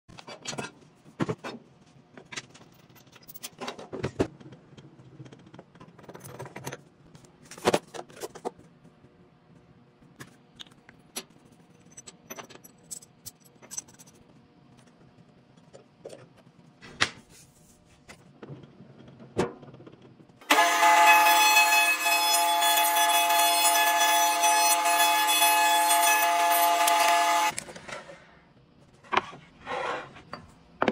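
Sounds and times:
metal parts and tools clinking: 11.7 - 14.3.

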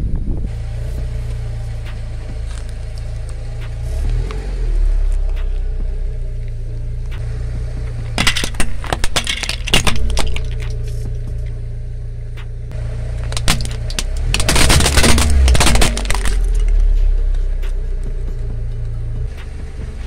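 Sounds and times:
car engine low hum: 0.0 - 20.0
plastic toys cracking and crunching: 8.1 - 11.0, 13.1 - 17.0.

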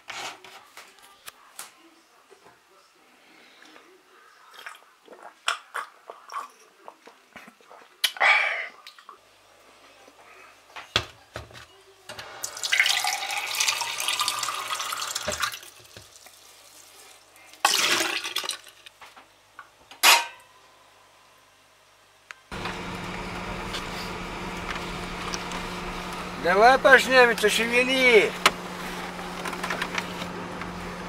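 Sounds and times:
tap water filling a glass: 12.4 - 16.2
car engine humming: 22.5 - 31.0.

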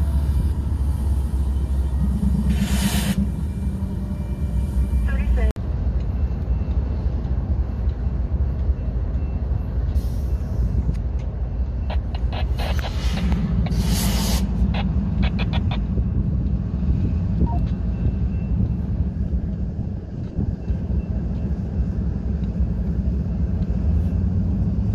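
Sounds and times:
diesel locomotives rumbling: 0.0 - 24.9
sharp clicks: 10.9 - 13.7, 14.6 - 16.0
short hisses: 12.6 - 14.6.

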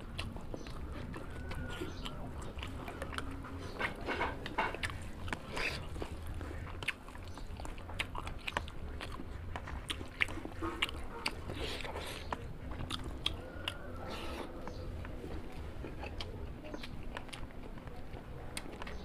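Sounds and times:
food crunching: 0.0 - 19.0
person chewing food: 0.0 - 19.0.

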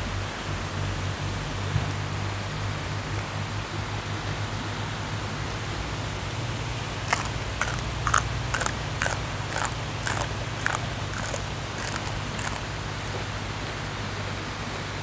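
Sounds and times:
crunching vegetable stalk: 7.0 - 13.3.

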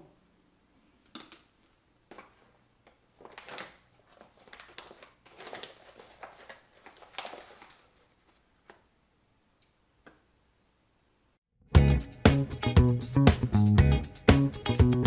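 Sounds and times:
packaging rustling and clicking: 1.2 - 8.8.

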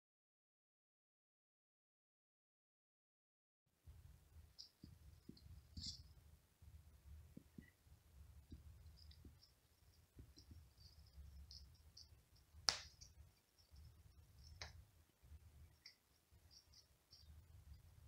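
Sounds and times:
faint ticks and clicks: 4.4 - 6.2, 8.4 - 18.0.

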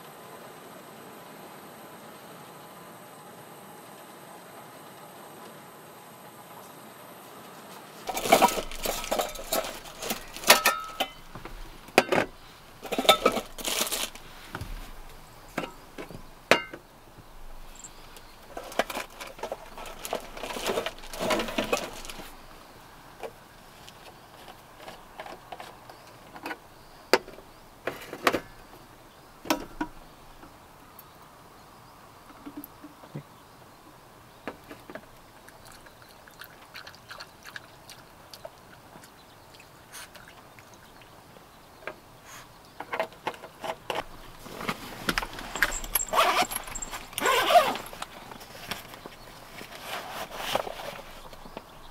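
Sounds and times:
small objects clinking and knocking: 8.1 - 11.4, 12.0 - 14.2, 45.1 - 49.0.

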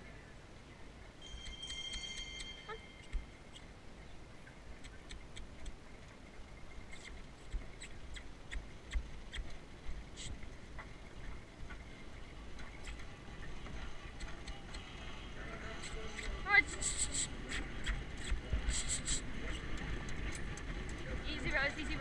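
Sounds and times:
cart and harness rattling: 8.7 - 22.0.

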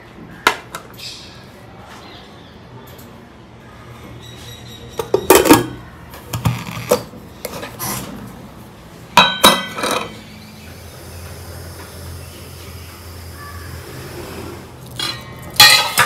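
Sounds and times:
dishes and utensils clinking: 4.8 - 7.8, 9.2 - 10.2, 14.9 - 16.0.

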